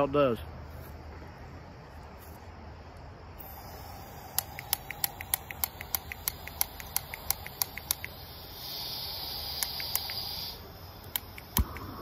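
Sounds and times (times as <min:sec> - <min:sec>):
gas hissing: 0:03.4 - 0:12.0
spark igniter clicking: 0:04.2 - 0:12.0.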